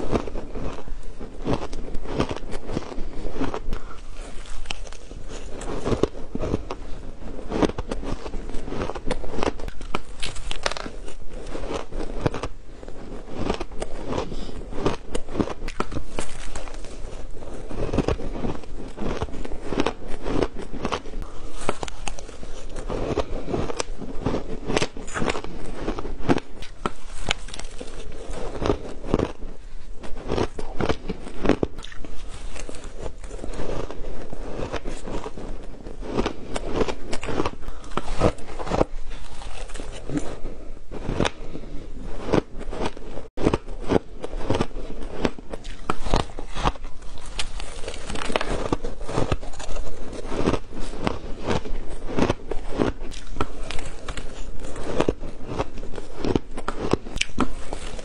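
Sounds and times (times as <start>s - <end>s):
shaved ice crunching in mouth: 13.4s - 29.4s, 30.0s - 41.4s, 42.3s - 58.0s.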